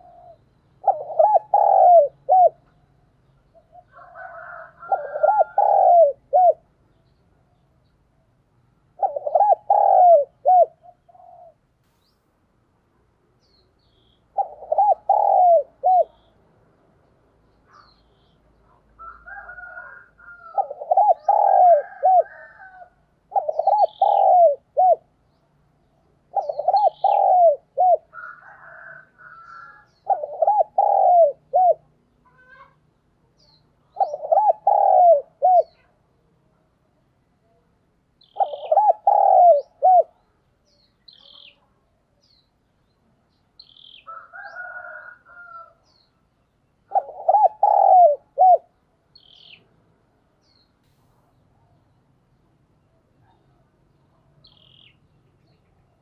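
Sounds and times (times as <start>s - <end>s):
dove cooing: 0.0s - 6.7s, 8.9s - 11.6s, 14.3s - 16.3s, 19.0s - 25.2s, 26.2s - 32.8s, 33.9s - 36.0s, 38.2s - 40.3s, 46.8s - 49.6s
small bird chirps: 38.2s - 44.8s, 45.4s - 49.7s, 50.4s - 56.0s.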